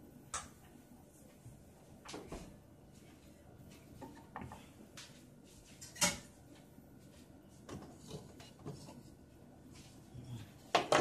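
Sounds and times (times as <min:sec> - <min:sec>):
kitchen items knocking and clicking: 0:10.7 - 0:11.0.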